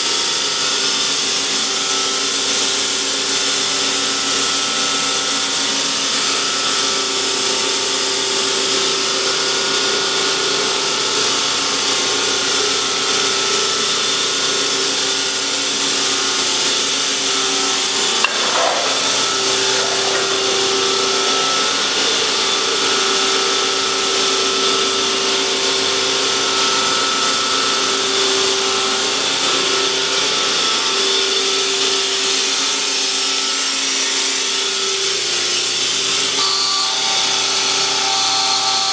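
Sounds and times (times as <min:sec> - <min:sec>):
hydraulic pump hum and whine: 0:00.2 - 0:30.5.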